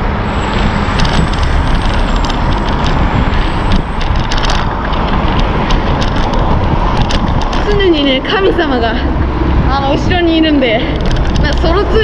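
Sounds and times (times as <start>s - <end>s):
city traffic: 0.0s - 12.0s
wind noise on microphone: 0.0s - 12.0s
rattling clicks: 0.9s - 8.6s, 10.8s - 12.0s.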